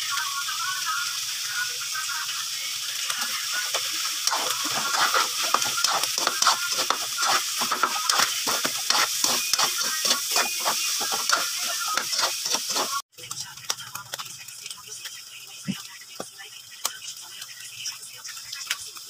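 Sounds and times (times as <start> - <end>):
meat sizzling in a pan: 0.0 - 19.0
spatula scraping a pan: 3.6 - 13.0.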